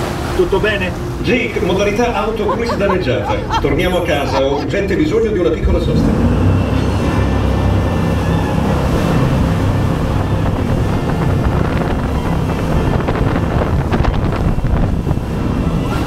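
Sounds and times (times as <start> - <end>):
rushing water and spray: 0.0 - 4.3, 5.9 - 16.0
wind buffeting microphone: 7.3 - 16.0.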